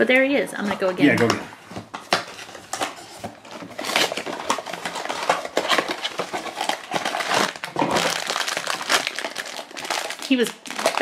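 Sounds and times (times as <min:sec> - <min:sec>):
cardboard box tearing and rustling: 0:02.3 - 0:10.1.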